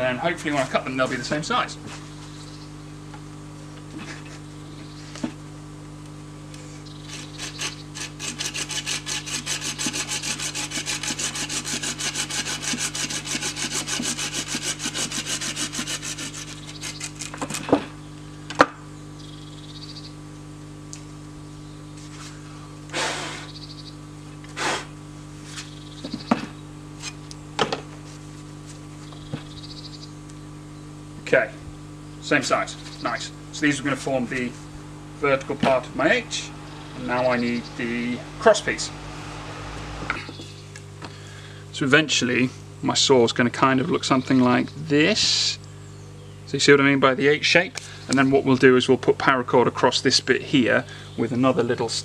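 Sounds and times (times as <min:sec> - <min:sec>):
hand saw cutting wood: 0:07.1 - 0:17.6.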